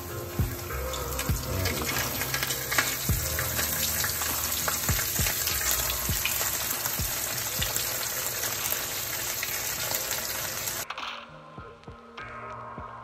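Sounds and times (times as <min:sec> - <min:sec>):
fish frying in hot oil: 0:00.0 - 0:10.8.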